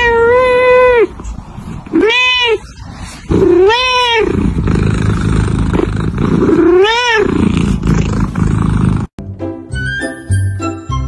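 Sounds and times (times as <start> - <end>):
kitten meowing: 3.3 - 4.4, 6.6 - 7.3.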